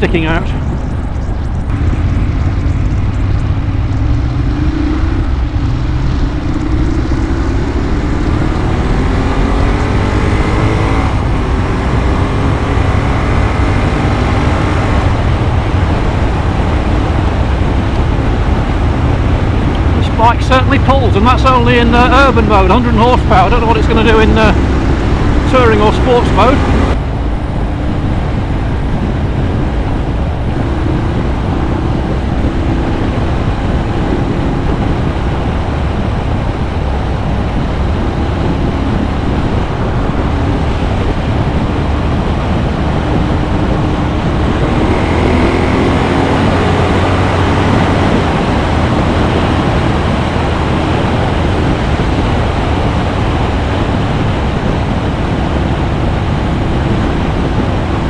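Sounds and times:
motorcycle engine running: 0.0s - 58.0s
wind rushing on microphone: 0.0s - 58.0s.

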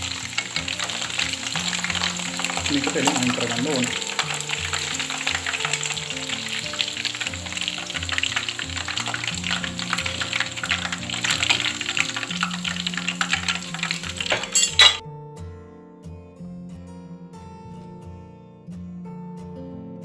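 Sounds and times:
chicken deep-frying in oil: 0.0s - 15.0s
background music: 0.0s - 20.0s.

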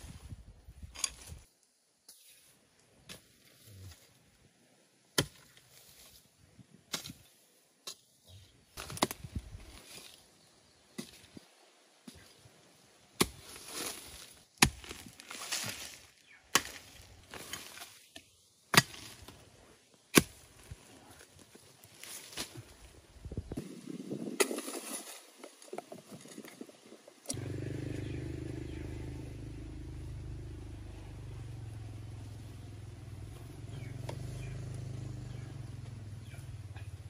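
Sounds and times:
earth and dry leaves scraping: 0.0s - 1.5s, 8.7s - 10.4s, 13.2s - 18.2s, 18.8s - 28.9s
hoe chopping into soil: 8.8s - 9.3s, 13.2s - 18.0s, 18.7s - 19.4s, 20.1s - 20.6s.

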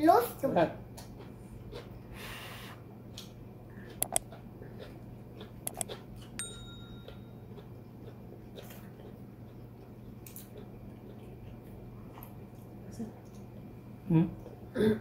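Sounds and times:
steady low hum: 0.0s - 15.0s
mouse clicks: 4.0s - 4.2s, 5.7s - 5.9s
bell ding: 6.4s - 7.4s.

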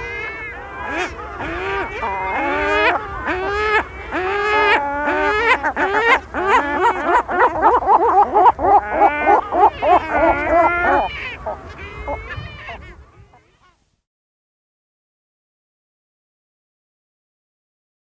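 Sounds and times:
gull repeated choking call: 0.0s - 13.4s.

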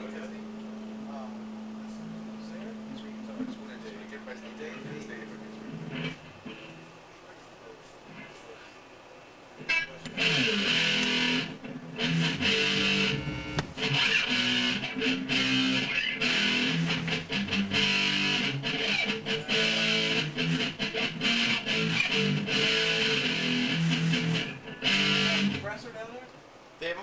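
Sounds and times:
electric guitar through amplifier: 0.0s - 7.0s, 9.6s - 25.9s.

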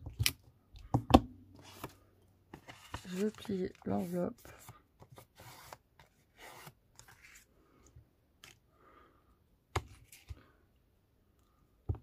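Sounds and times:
paper rustling and rubbing: 2.5s - 7.4s.

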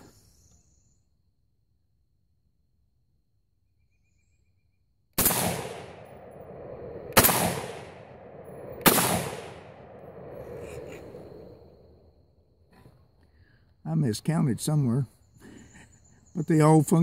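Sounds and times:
rifle shots with echo: 5.2s - 10.3s.

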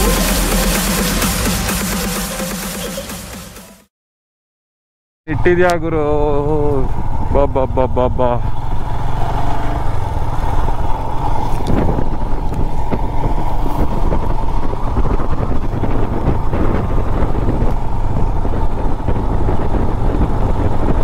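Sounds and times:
motorcycle engine running: 0.0s - 3.7s, 8.4s - 21.0s
rushing road noise: 0.0s - 3.7s, 6.1s - 21.0s.

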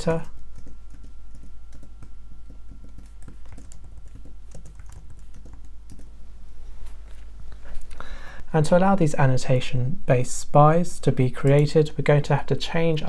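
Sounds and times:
keyboard typing: 0.0s - 6.2s.

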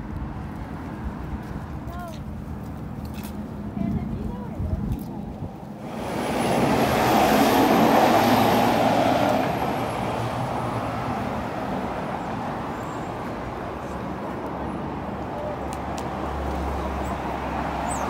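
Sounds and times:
steady traffic rumble: 0.0s - 18.0s
vehicle passing close: 5.8s - 18.0s.

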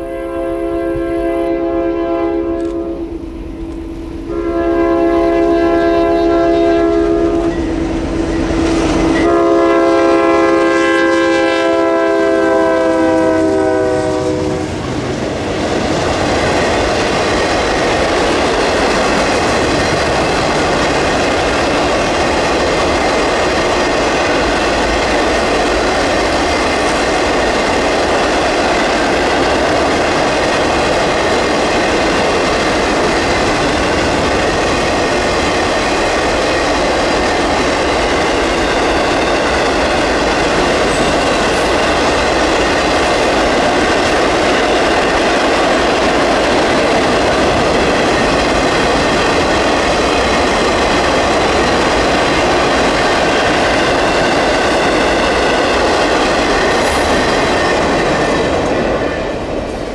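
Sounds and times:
locomotive air horn blasts: 0.0s - 3.2s, 4.2s - 7.9s, 8.6s - 14.8s
train rumble and wheel clatter: 0.0s - 59.9s.

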